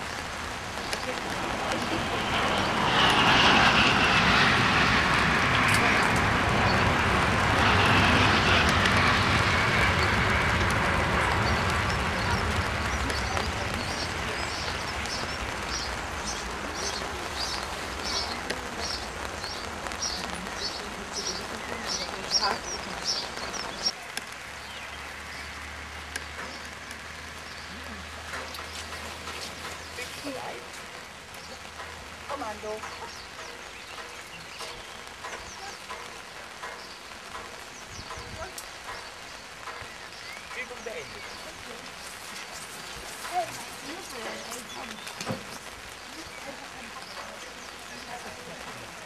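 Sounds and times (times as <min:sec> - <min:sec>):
low rumble: 0:00.0 - 0:24.0
steady low rumble: 0:00.0 - 0:49.0
small birds chirping: 0:00.8 - 0:49.0
bird chirping: 0:27.4 - 0:41.7.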